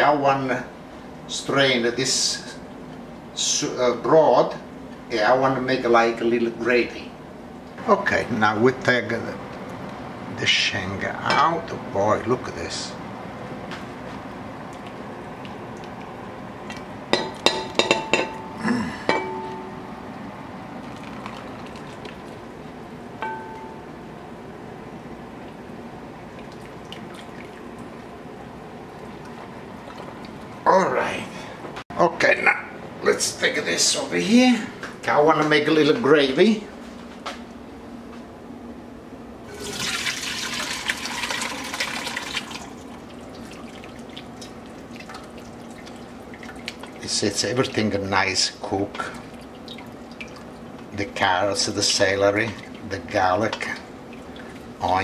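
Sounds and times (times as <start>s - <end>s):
faint drips: 26.2s - 28.1s, 42.5s - 47.8s, 48.9s - 51.0s, 52.0s - 55.0s
liquid splashing into metal bowl: 39.5s - 47.0s, 49.1s - 50.8s.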